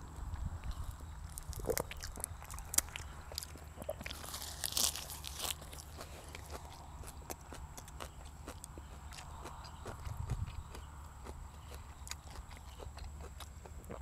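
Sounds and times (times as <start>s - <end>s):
person chewing crisp greens: 0.0s - 14.0s.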